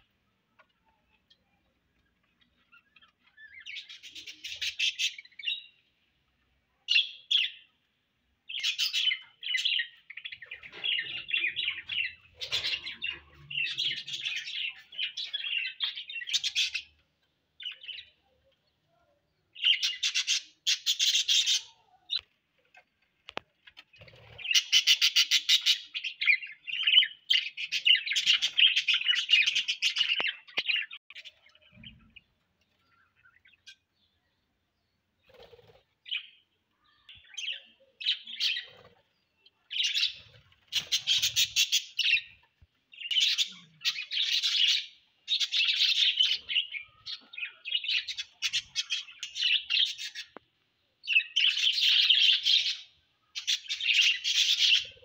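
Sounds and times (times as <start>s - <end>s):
budgerigars chirping and chattering: 2.6s - 5.7s, 8.5s - 17.0s, 19.6s - 21.8s, 24.0s - 32.1s, 39.7s - 50.4s, 51.0s - 55.0s.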